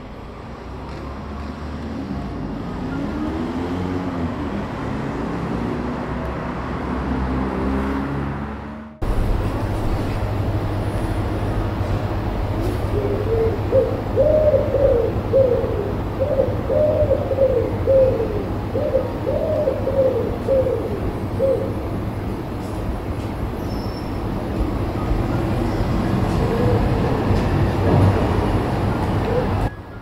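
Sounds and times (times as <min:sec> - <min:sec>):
low rumble of town background: 0:00.0 - 0:30.0
pigeon cooing: 0:12.7 - 0:21.9, 0:26.1 - 0:27.5, 0:29.1 - 0:29.8.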